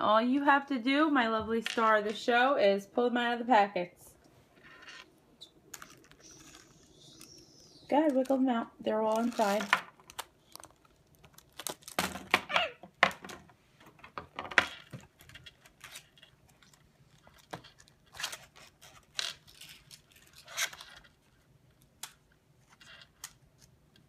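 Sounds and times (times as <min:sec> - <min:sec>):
plastic packaging crinkling: 0:05.6 - 0:07.4, 0:08.0 - 0:12.6, 0:14.9 - 0:23.8.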